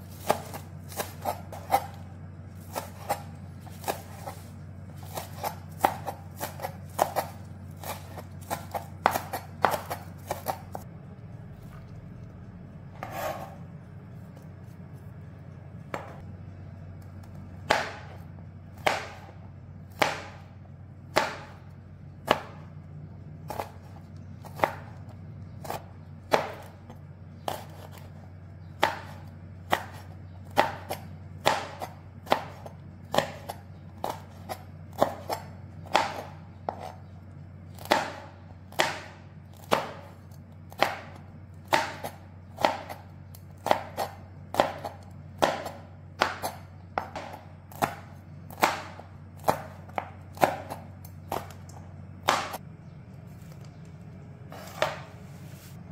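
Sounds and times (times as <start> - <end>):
steady low hum: 0.0 - 55.9
knife chopping on plastic board: 0.1 - 10.9, 15.9 - 16.3, 17.2 - 18.2, 18.8 - 20.5, 21.1 - 21.6, 22.2 - 22.7, 23.4 - 25.0, 25.6 - 26.8, 27.4 - 28.1, 28.7 - 37.1, 37.7 - 43.0, 43.6 - 52.6, 54.5 - 55.2.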